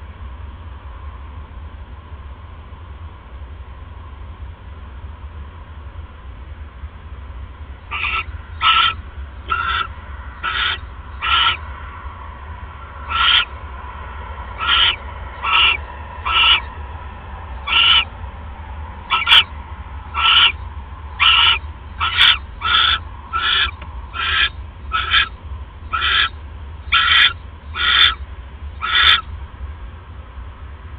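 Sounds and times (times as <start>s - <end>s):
barn owl calling: 7.8s - 11.8s, 12.8s - 13.6s, 14.5s - 16.8s, 17.5s - 18.2s, 19.0s - 29.4s.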